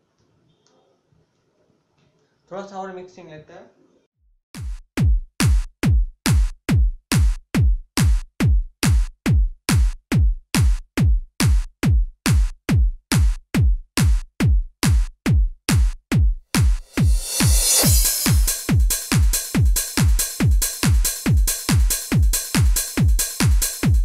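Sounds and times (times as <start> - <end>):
drum machine kick thudding: 4.6 - 24.0
electronic dance music: 16.6 - 24.0
bright hissing swell: 17.0 - 18.5.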